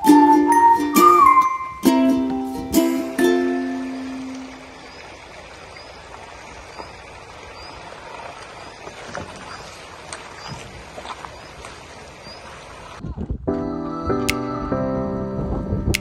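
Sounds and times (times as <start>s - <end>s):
short high chirp: 0.0s - 2.2s
stream rushing over stones: 0.0s - 13.0s.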